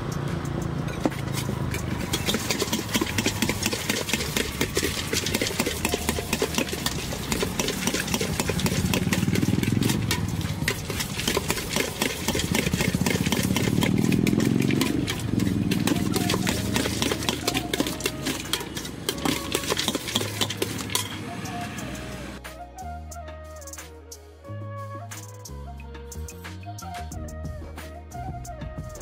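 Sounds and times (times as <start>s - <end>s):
road traffic engines: 0.0s - 22.5s.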